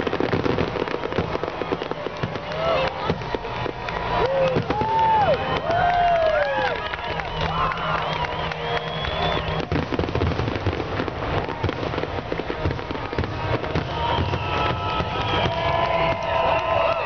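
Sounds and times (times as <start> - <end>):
fireworks bursting and crackling: 0.0 - 17.0.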